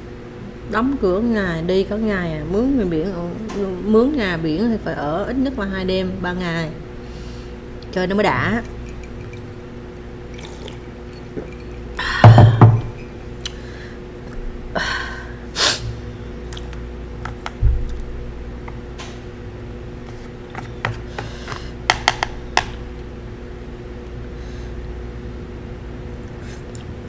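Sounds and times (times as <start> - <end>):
steady room hum: 0.0 - 27.0
person sipping from a cup: 10.4 - 12.0.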